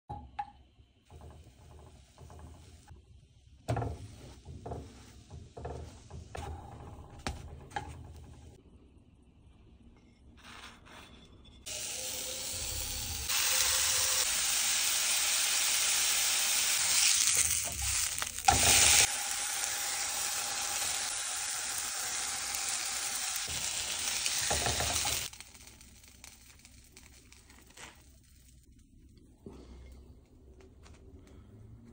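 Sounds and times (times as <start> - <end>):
burger patty sizzling: 11.7 - 28.8.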